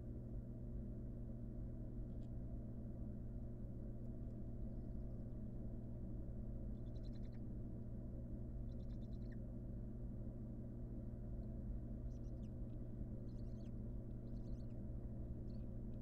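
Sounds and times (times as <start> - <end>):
steady low hum: 0.0 - 16.0
owls twittering calls: 6.7 - 7.5, 8.6 - 9.5, 11.4 - 16.0.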